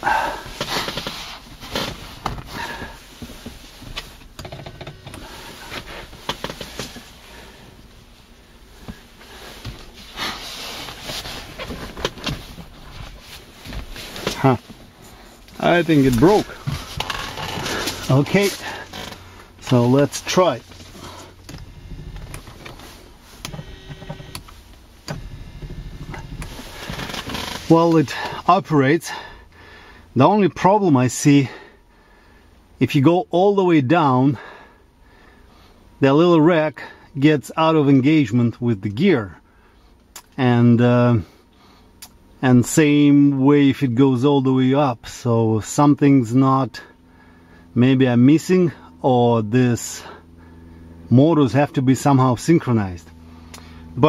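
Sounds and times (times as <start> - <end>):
headrest motor clicking and rattling: 0.0 - 28.8
electric motor humming: 20.8 - 27.4.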